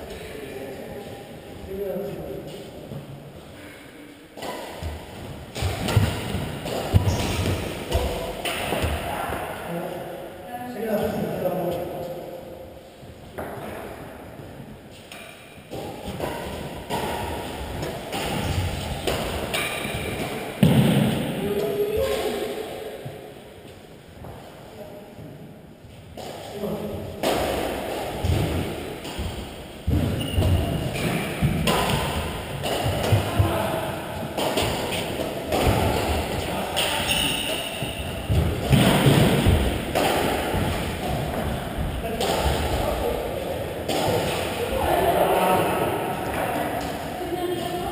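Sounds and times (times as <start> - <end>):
voices in large hall: 0.0 - 47.9
rackets hitting shuttlecock: 4.4 - 9.5, 15.1 - 22.5, 26.2 - 47.1.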